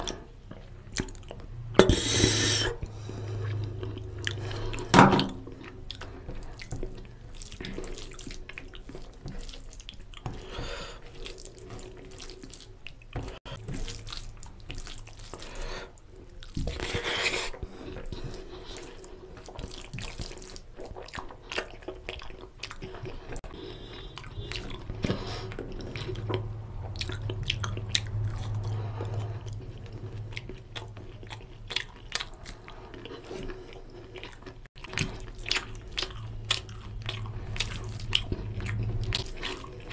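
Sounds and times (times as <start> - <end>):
fingers mixing wet rice: 5.7 - 23.4.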